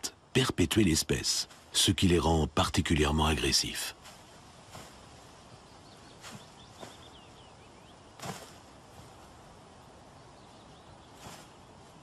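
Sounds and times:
small birds chirping: 0.0s - 12.0s
birds flapping and scuffling: 4.0s - 7.4s, 8.1s - 9.6s.

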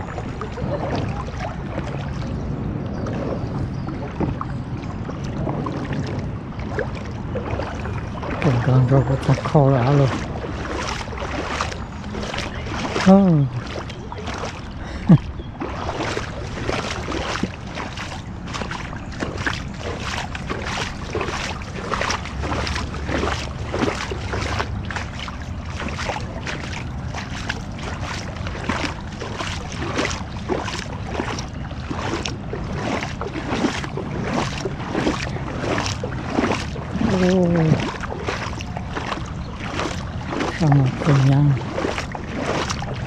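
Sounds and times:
sharp splashes and drops: 15.2s - 43.0s.

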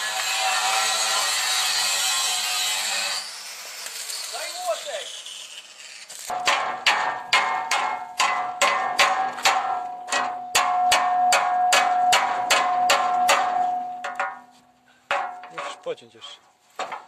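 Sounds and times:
arc welding hiss: 2.3s - 6.3s
hammer on steel frame: 6.3s - 15.7s.

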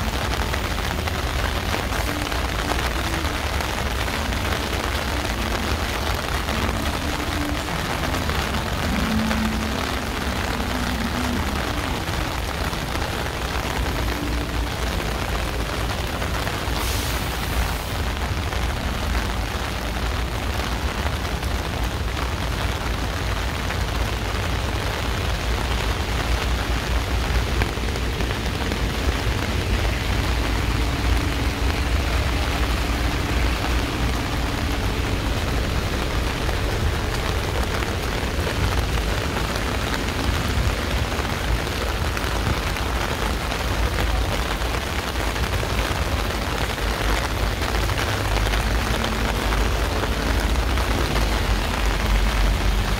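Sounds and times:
heavy rain pouring: 0.0s - 52.9s
deep rumble: 24.0s - 52.9s.

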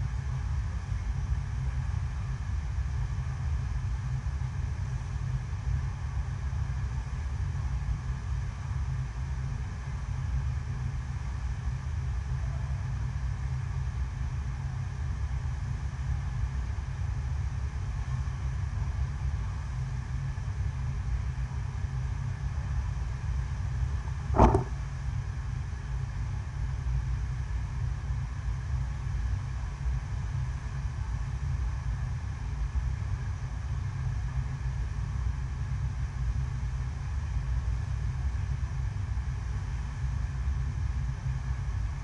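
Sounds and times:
sharp knock: 24.4s - 24.8s.

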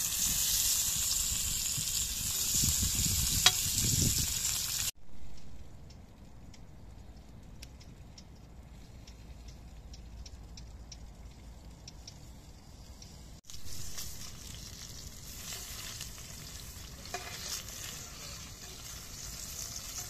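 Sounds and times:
pepper sizzling in a metal pan: 0.0s - 4.9s, 13.4s - 20.0s
faint scattered ticks: 5.3s - 14.0s.

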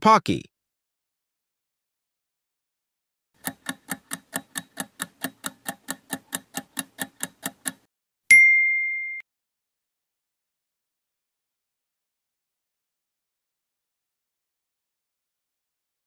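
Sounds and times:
clock-like ticking: 3.4s - 7.9s
bell ding: 8.3s - 9.2s.

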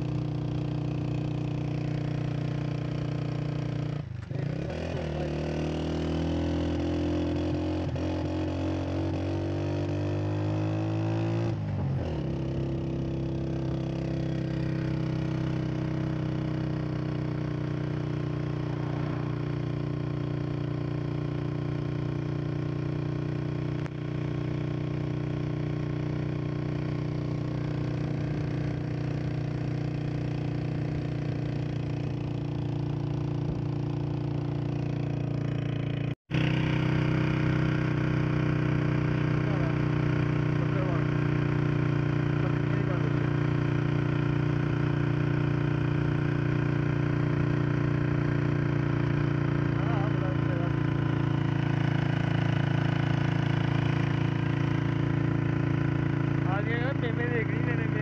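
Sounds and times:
motorcycle engine accelerating: 0.0s - 58.0s.

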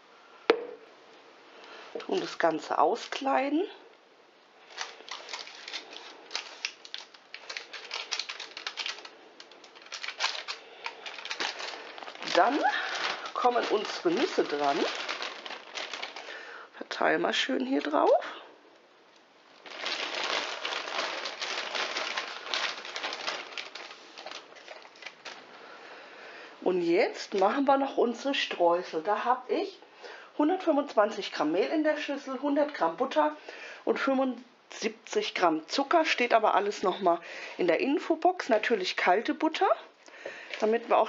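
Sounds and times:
plastic bag crinkling: 4.6s - 16.6s, 19.5s - 25.6s
nuts pattering onto batter: 4.7s - 16.4s
paper rustling: 4.7s - 16.4s, 19.6s - 25.5s.

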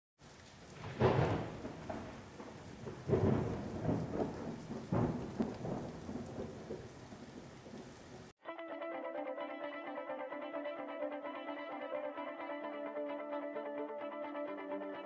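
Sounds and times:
steady rain: 0.2s - 8.4s
rolling thunder: 0.7s - 8.3s
plucked guitar music: 8.4s - 15.0s.

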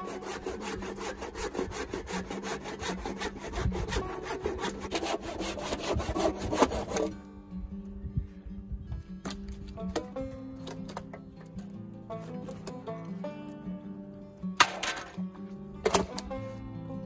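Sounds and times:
hand saw cutting branch: 0.0s - 7.2s.

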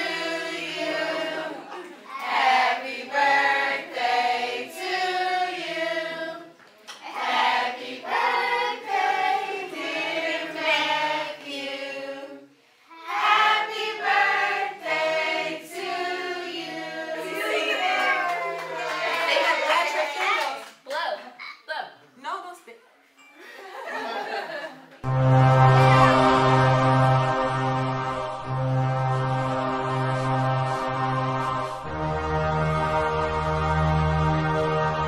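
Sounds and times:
group singing in unison: 0.0s - 17.8s, 25.0s - 35.0s.

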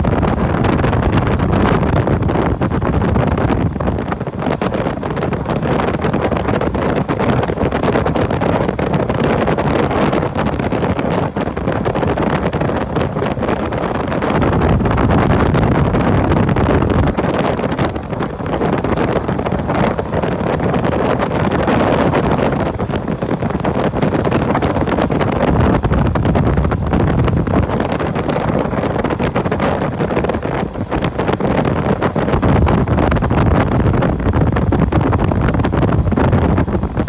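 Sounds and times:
wind rushing over microphone: 0.0s - 37.0s.

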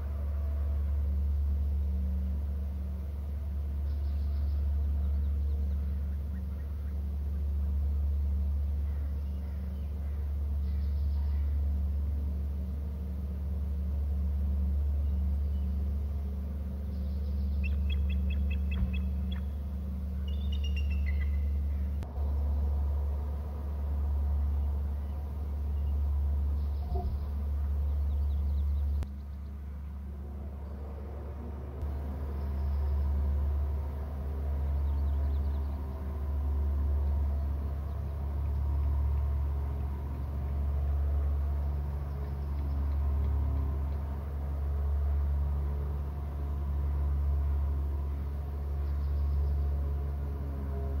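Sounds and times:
low rumble: 0.0s - 51.0s
bird chirping: 3.8s - 7.1s, 8.1s - 11.7s, 14.9s - 22.7s, 24.5s - 29.6s, 48.8s - 49.8s.

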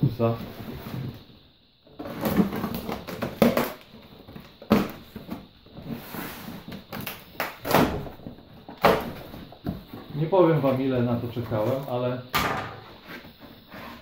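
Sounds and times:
cardboard scraping and rustling: 12.8s - 14.0s.

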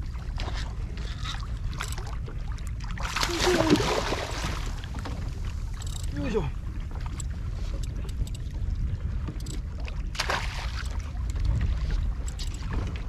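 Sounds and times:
wind rumble on microphone: 0.0s - 13.0s
water splash: 2.9s - 5.0s, 10.1s - 11.0s.

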